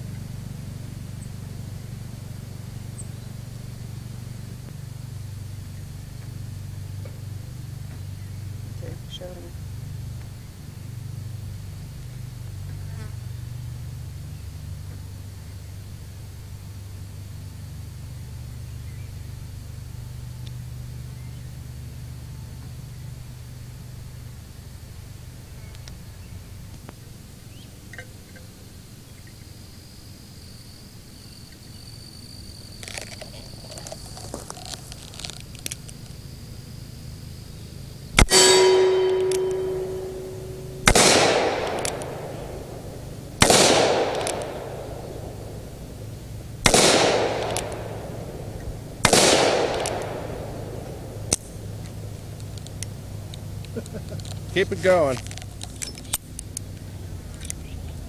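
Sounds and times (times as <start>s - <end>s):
revolver shots with echo: 38.2s - 51.8s.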